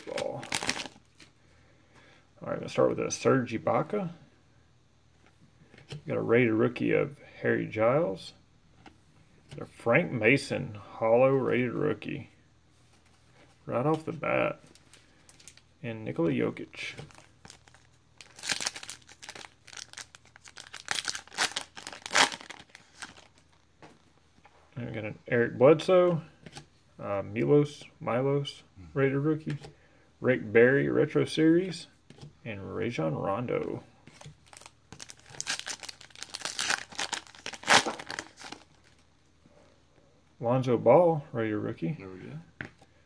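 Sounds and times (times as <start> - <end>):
foil wrapper tearing and crinkling: 0.0 - 1.2, 17.1 - 23.5, 34.4 - 39.0.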